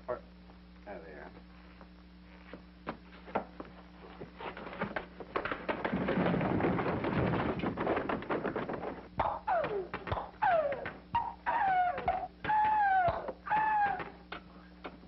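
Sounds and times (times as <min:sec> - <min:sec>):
objects knocking: 0:04.4 - 0:11.3
loud clattering crash: 0:05.5 - 0:09.1.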